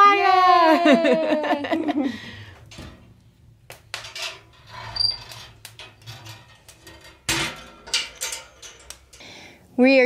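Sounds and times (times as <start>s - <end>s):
fire crackling in wood stove: 2.4s - 10.0s
stove door clanking shut: 5.7s - 9.0s.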